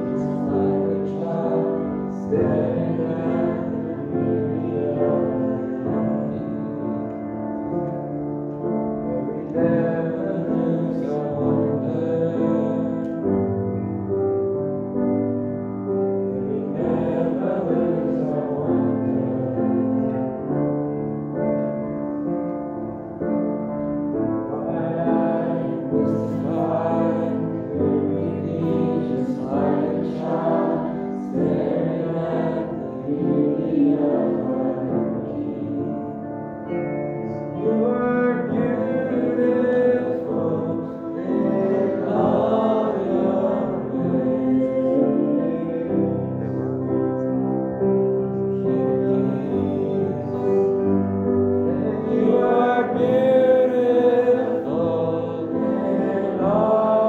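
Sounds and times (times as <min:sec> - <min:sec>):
sung vocals: 0:00.0 - 0:07.2, 0:09.0 - 0:13.6, 0:24.5 - 0:36.3, 0:37.2 - 0:47.0, 0:48.4 - 0:57.0
piano: 0:00.0 - 0:57.0
worship band playing slow song: 0:00.0 - 0:57.0.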